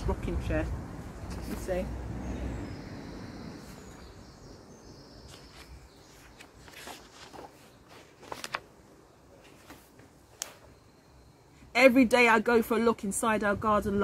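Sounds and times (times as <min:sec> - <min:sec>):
faint outdoor background: 0:00.0 - 0:14.0
paper pages rustling: 0:05.2 - 0:10.7.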